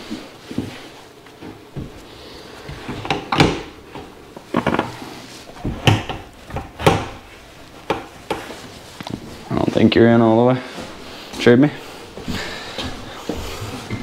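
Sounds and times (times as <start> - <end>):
projector screen knocking on brackets: 5.6 - 7.2.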